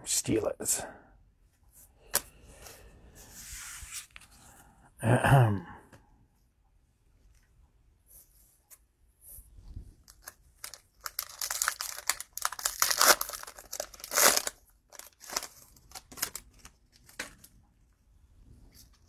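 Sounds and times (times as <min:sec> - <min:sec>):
cellophane wrapper crinkling: 0:10.0 - 0:17.5.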